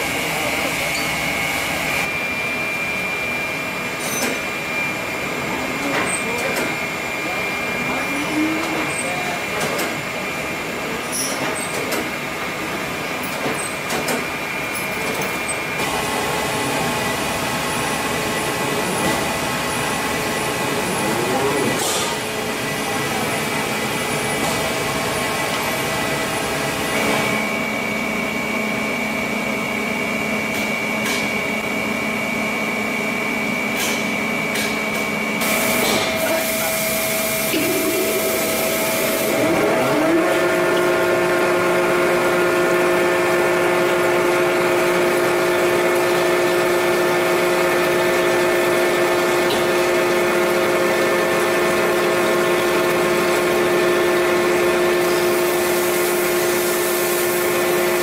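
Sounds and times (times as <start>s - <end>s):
thread rolling machine humming: 12.0s - 58.0s.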